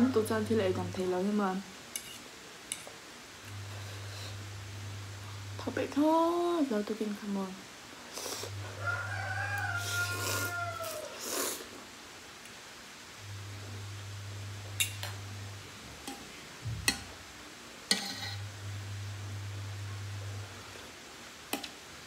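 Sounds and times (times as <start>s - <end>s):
low hum: 3.4s - 6.8s, 13.2s - 21.0s
rooster crowing: 8.6s - 11.2s
slurping: 9.8s - 11.8s.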